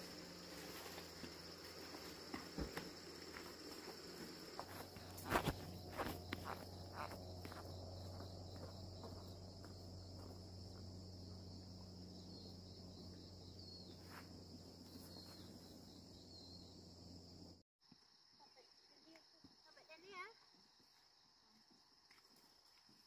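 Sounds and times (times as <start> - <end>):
footsteps on grass: 0.0 - 10.4
crickets chirping: 0.0 - 23.0.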